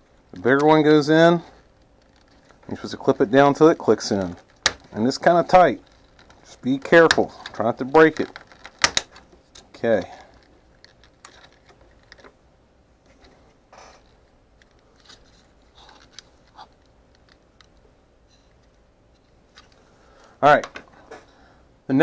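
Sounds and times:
plastic parts clicking and tapping: 0:01.5 - 0:12.4, 0:14.0 - 0:17.8.

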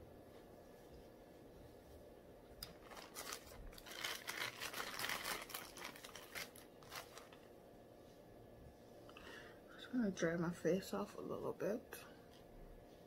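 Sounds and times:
crinkling and rustling: 0:02.6 - 0:07.5.

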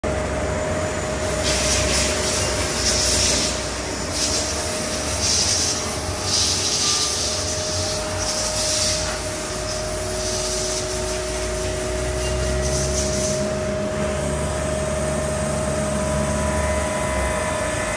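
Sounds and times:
lathe mechanical hum: 0:00.0 - 0:17.9
coolant hissing spurts: 0:01.2 - 0:14.0.

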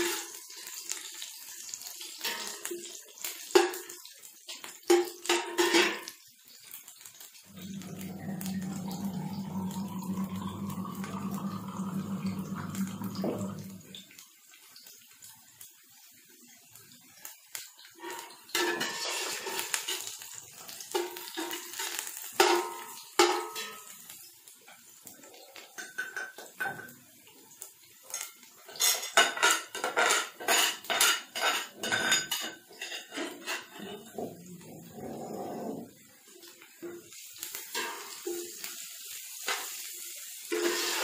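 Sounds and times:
onions sizzling in oil: 0:00.0 - 0:41.0
skimmer scraping steel pot: 0:07.5 - 0:14.0, 0:40.5 - 0:41.0.

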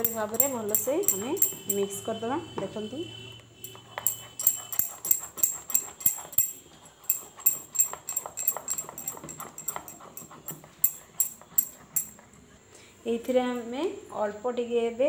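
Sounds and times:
spatula stirring wet batter: 0:00.0 - 0:02.3, 0:03.6 - 0:12.5.

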